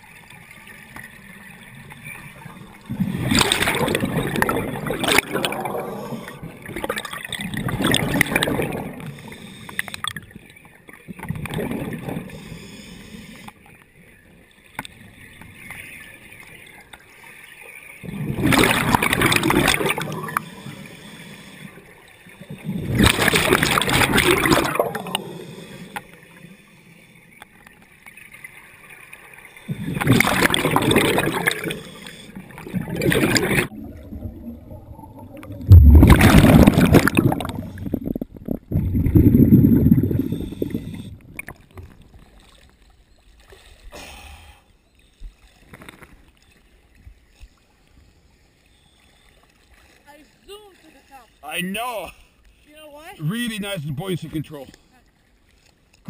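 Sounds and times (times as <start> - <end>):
underwater regulator bubbles: 2.1 - 10.3, 11.2 - 12.5, 18.0 - 21.5, 22.4 - 26.1, 29.7 - 42.2.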